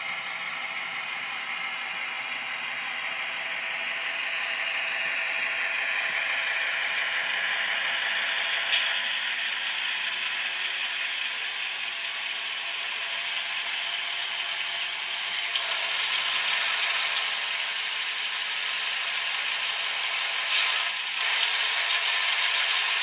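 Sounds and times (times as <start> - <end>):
model locomotive diesel engine sound: 0.0 - 23.0
model motor and wheels on track: 0.0 - 23.0
sharp click: 8.7 - 9.0.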